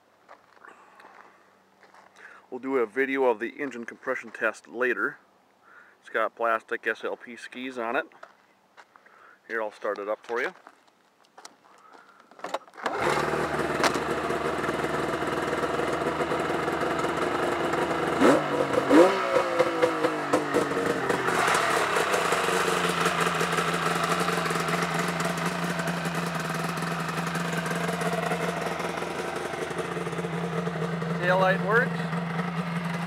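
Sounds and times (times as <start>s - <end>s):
snowmobile engine starting and revving: 12.8s - 33.0s.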